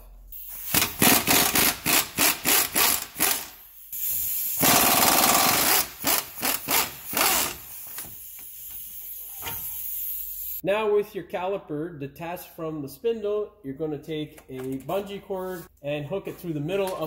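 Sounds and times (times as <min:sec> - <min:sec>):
pneumatic wrench bursts: 0:00.4 - 0:10.6.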